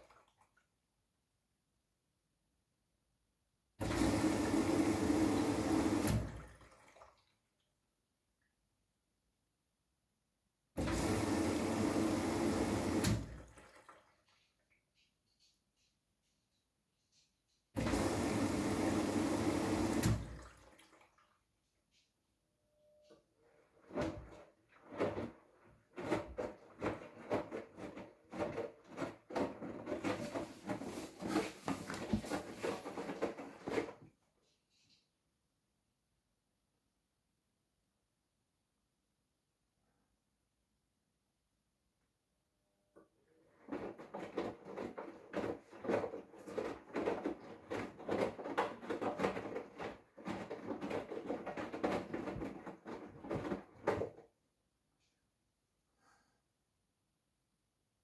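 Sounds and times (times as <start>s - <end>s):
washing machine laundry sloshing: 0.0s - 0.6s, 3.8s - 7.6s, 10.8s - 15.1s, 17.8s - 21.4s, 23.5s - 34.0s, 43.5s - 54.2s.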